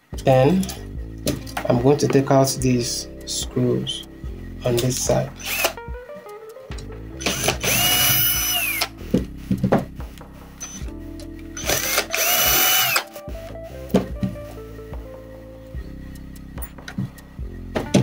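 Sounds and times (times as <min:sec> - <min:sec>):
drill motor whine: 0:05.4 - 0:05.8, 0:07.2 - 0:08.9, 0:10.6 - 0:10.9, 0:11.6 - 0:13.0.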